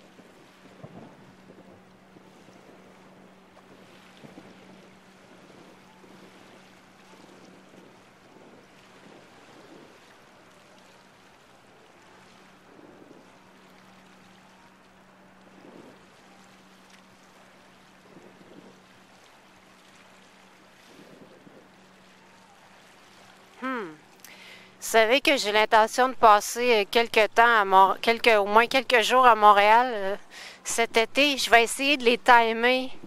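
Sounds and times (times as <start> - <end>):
wind on microphone: 0.0 - 22.7.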